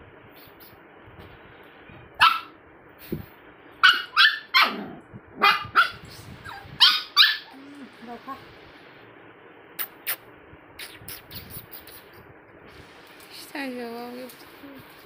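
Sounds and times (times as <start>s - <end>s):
puppy yapping: 2.2s - 2.6s, 3.8s - 7.6s.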